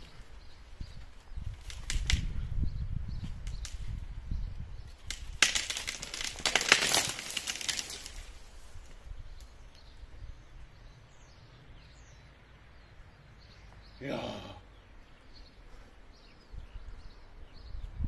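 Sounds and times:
leafy branches rustling: 0.0 - 10.2
branches snapping: 1.4 - 2.4, 3.2 - 4.0, 4.8 - 9.5.

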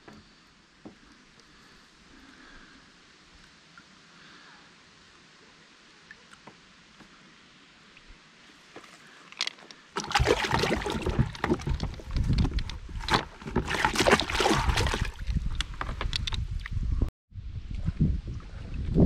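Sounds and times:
water splashing in bucket: 10.0 - 15.8
knocks and rustling of net: 10.0 - 16.3.

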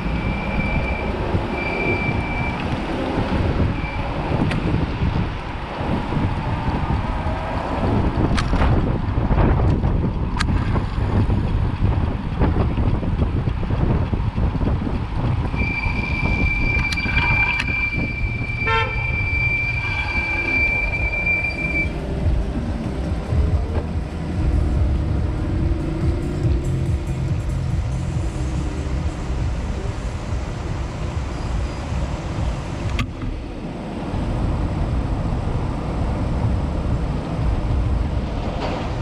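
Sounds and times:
high-pitched squeal: 0.0 - 4.4, 15.5 - 22.2, 28.2 - 32.8
street traffic rumble: 0.0 - 39.0
wind: 0.0 - 39.0.

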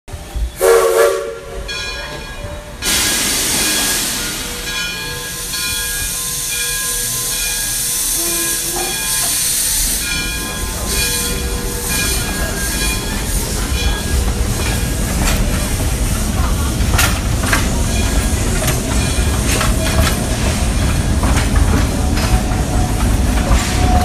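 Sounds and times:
steam locomotive whistle: 0.2 - 1.9, 2.8 - 14.2, 22.6 - 24.0
steam hissing: 2.7 - 24.0.

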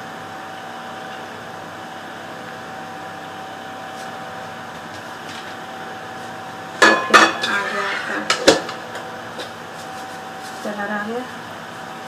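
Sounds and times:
background hum and hiss: 0.0 - 12.0
faint whine: 0.0 - 12.0.

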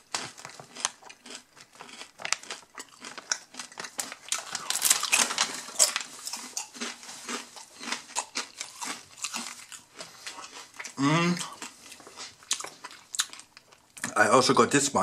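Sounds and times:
foil bag crinkling: 0.0 - 10.9
chewing crunchy chips: 0.0 - 14.2.

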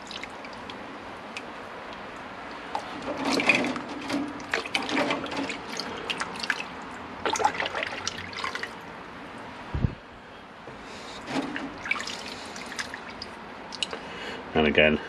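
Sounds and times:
water dripping: 0.0 - 2.9, 4.3 - 8.8, 11.6 - 14.0
hands splashing in liquid: 3.1 - 8.8.

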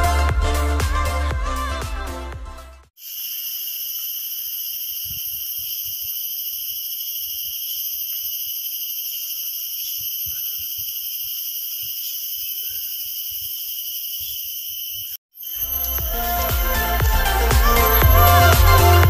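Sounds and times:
insects droning: 3.0 - 16.3.

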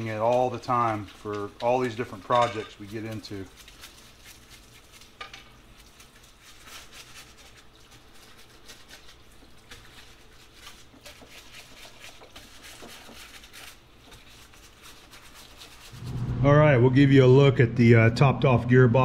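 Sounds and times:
brush scrubbing bolts: 0.0 - 4.8, 5.6 - 16.0.

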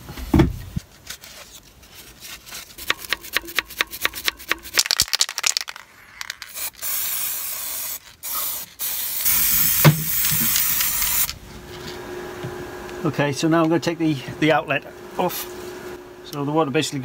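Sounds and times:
spray can hissing: 2.8 - 11.4
spray can rattling: 2.8 - 11.4.

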